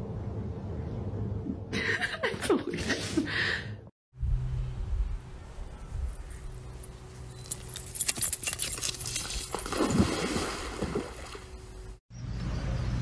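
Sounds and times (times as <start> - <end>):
dog splashing into pool: 8.7 - 11.4.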